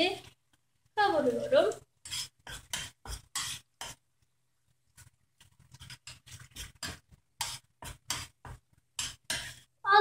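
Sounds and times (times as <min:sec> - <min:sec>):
metal spoon scraping saucepan: 0:01.2 - 0:04.0, 0:05.4 - 0:09.7.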